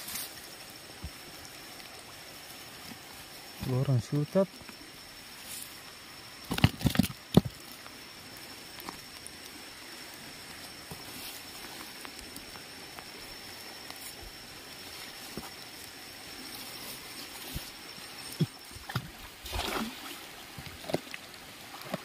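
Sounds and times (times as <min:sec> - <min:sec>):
faint high whine: 0:00.0 - 0:22.0
low steady hiss: 0:00.0 - 0:22.0.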